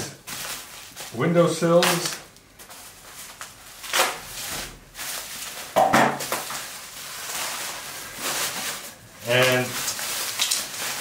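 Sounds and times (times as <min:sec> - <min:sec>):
bubble wrap rustling and crinkling: 0:00.0 - 0:11.0.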